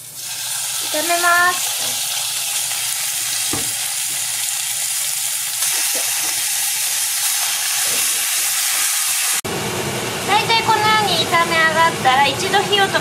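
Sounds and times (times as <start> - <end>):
meat sizzling in a pan: 0.0 - 9.4
chopsticks stirring in a pan: 5.6 - 8.8.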